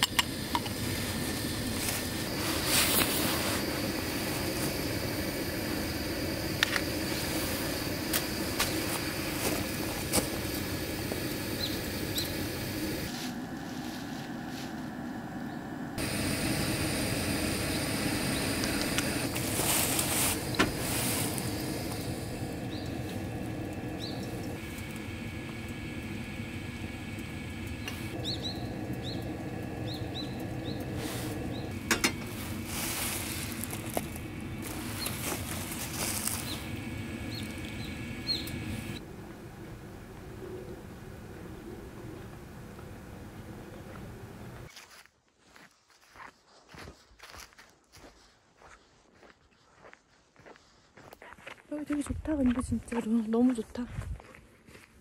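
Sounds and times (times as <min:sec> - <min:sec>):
steady low rush: 0:00.0 - 0:44.7
metal cookware clinking: 0:31.9 - 0:32.3.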